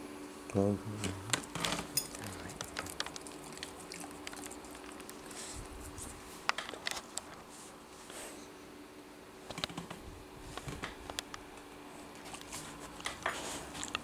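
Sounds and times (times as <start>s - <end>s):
dog sniffing and licking: 2.1s - 6.1s.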